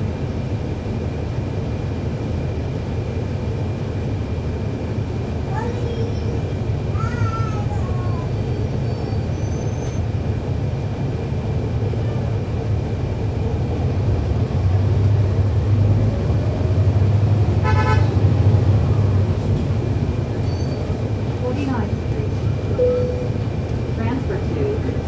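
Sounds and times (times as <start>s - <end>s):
bus diesel engine drone: 0.0s - 25.0s
brief high beep: 22.8s - 23.3s.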